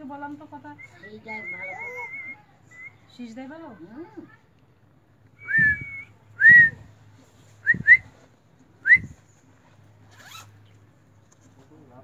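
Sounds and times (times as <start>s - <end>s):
short rising whistles: 5.4s - 6.8s.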